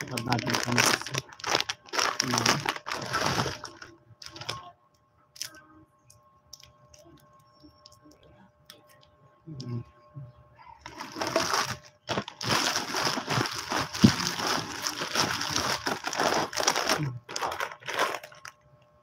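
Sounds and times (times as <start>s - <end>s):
wrapped candies spilling from bag: 0.0s - 4.6s, 10.9s - 18.6s
candy wrappers crinkling: 0.0s - 4.7s, 10.8s - 18.6s.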